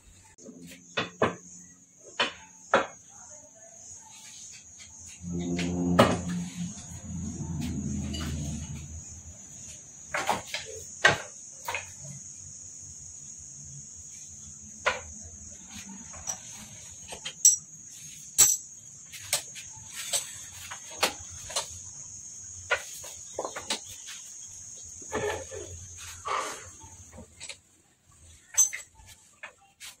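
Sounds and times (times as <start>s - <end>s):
high-pitched shrill hum: 5.1s - 9.6s
metal clinks and knocks: 16.0s - 21.0s, 28.5s - 29.6s.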